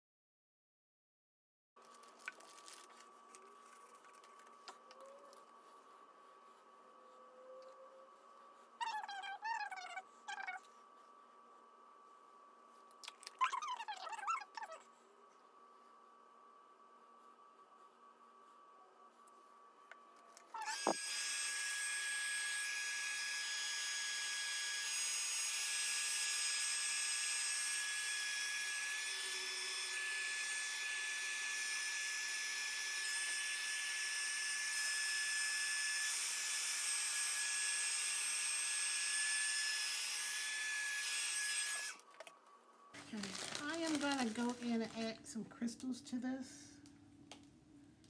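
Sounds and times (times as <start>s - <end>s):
heat gun fan whine: 16.3s - 42.0s.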